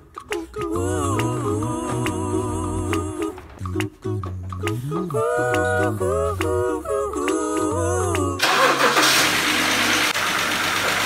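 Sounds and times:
background music: 0.0 - 8.4
car engine starting and running: 8.0 - 11.0.

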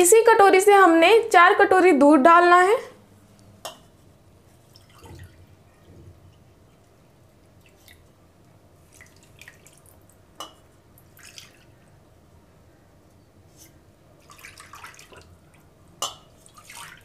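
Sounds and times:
milk splashing and dripping: 4.7 - 5.5, 7.4 - 8.2, 8.8 - 11.8, 14.2 - 17.0.

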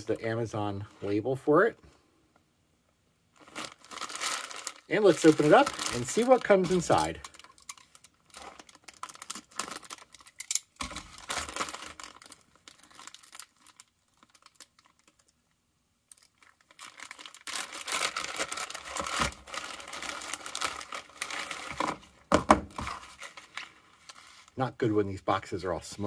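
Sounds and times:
plastic bag crinkling: 3.3 - 15.5, 16.1 - 24.6.

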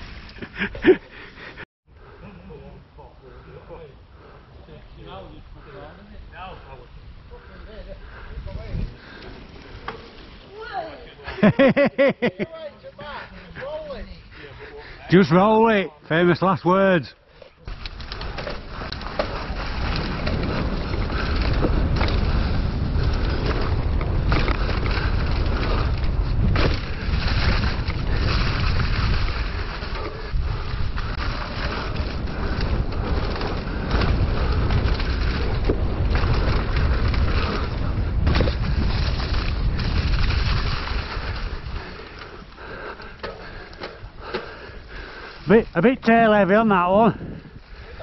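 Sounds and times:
wind rushing over microphone: 6.3 - 10.5, 17.7 - 48.0
bike tyres rolling over leaves: 6.6 - 11.8, 17.6 - 48.0
bike knocking over bumps: 17.7 - 30.2, 30.9 - 41.6.

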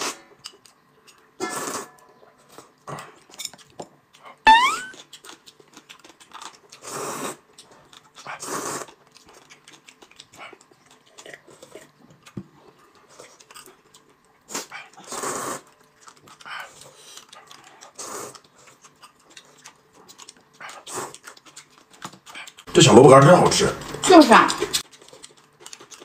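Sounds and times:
chewing: 0.3 - 1.4, 2.4 - 22.7, 23.7 - 26.0
short rising whistle-like tone: 4.5 - 5.0
noodles being slurped: 14.5 - 26.0.

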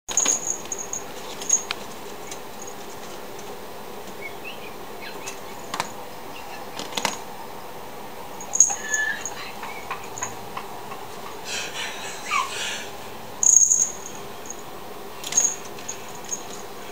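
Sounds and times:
high metallic jingles: 0.1 - 2.9, 8.3 - 10.5, 13.4 - 16.9.

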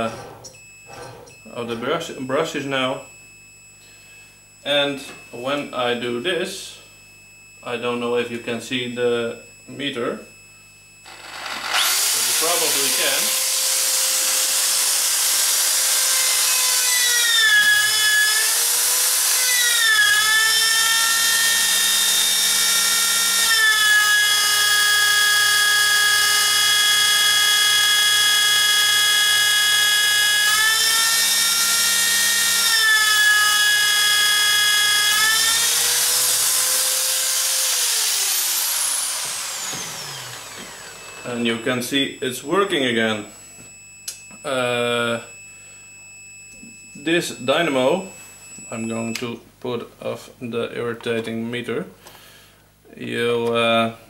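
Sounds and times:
power drill motor whine: 11.0 - 49.2.

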